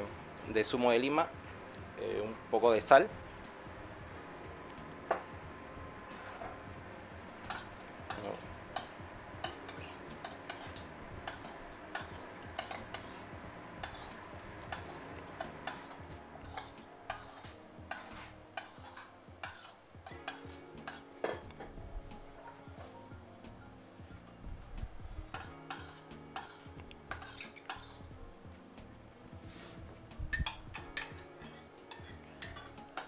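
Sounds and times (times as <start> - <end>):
metal spoon clinking on bowl: 25.3 - 28.0, 30.3 - 33.0.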